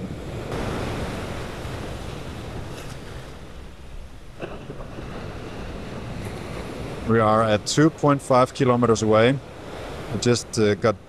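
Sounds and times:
surf washing on beach: 0.0s - 11.0s
wind buffeting microphone: 0.0s - 11.0s.

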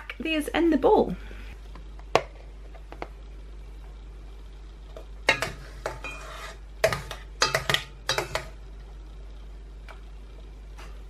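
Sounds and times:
metal spoon scraping a dish: 5.3s - 6.6s.

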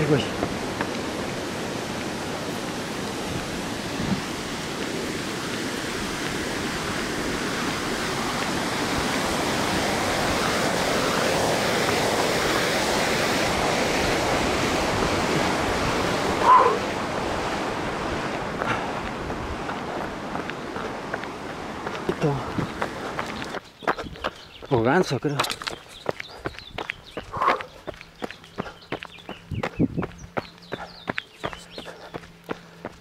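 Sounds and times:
waterfall rushing: 0.0s - 23.5s
short animal call: 16.4s - 16.9s.

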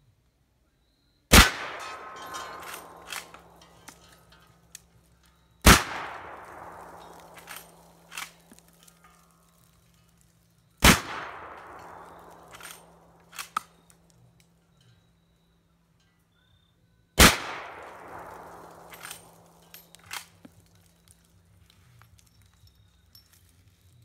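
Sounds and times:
rifle shots with echo: 1.3s - 4.4s, 5.6s - 8.7s, 10.8s - 13.9s, 17.2s - 20.4s.

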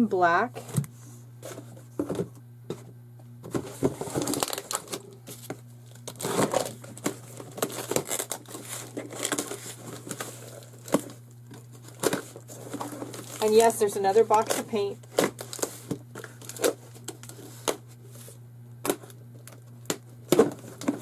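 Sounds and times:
plastic packaging crinkling: 3.6s - 21.0s.

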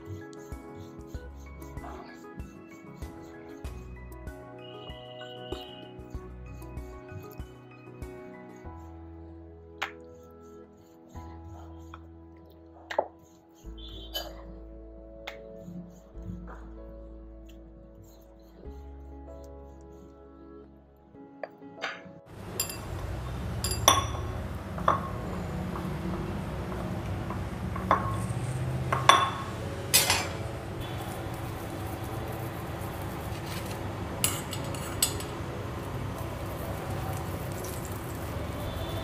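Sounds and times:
utensils clinking on steel bowls: 21.9s - 39.0s.

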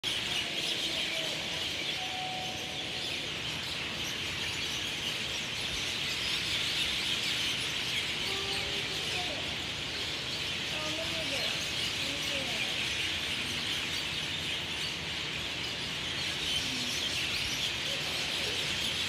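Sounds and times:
birds chattering and chirping: 0.0s - 19.0s
low whistled bird notes: 1.9s - 3.4s.

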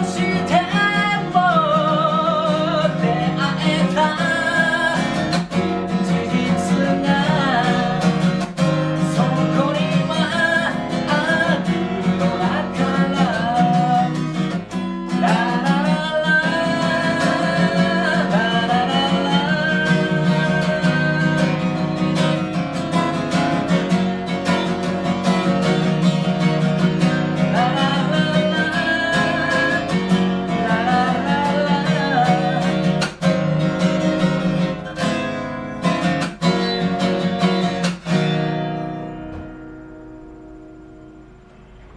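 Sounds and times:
person singing: 0.0s - 22.5s, 27.1s - 33.2s
acoustic guitar strumming: 0.0s - 41.9s.

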